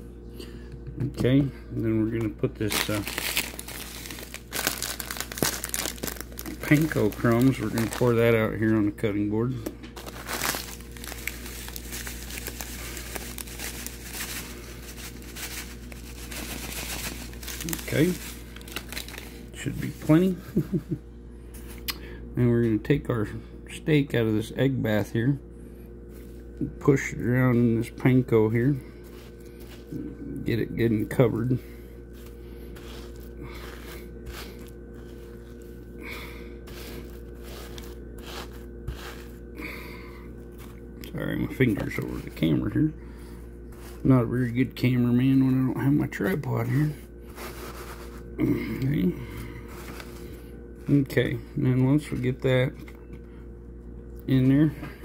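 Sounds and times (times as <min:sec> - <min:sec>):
breadcrumbs pouring crackles: 0:02.6 - 0:08.4, 0:10.0 - 0:19.4
fingers rustling breadcrumbs: 0:02.6 - 0:08.9, 0:10.0 - 0:20.2, 0:29.0 - 0:30.1, 0:31.0 - 0:40.8, 0:43.7 - 0:44.5, 0:46.2 - 0:51.1
plastic bag crinkling: 0:02.6 - 0:08.9, 0:10.0 - 0:20.4.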